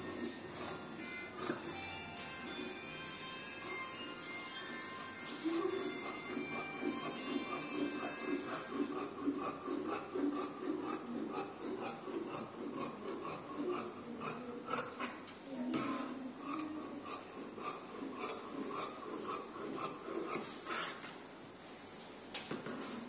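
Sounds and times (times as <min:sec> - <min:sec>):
scissors snipping fabric: 0:00.2 - 0:01.9, 0:04.9 - 0:15.2, 0:16.4 - 0:20.4.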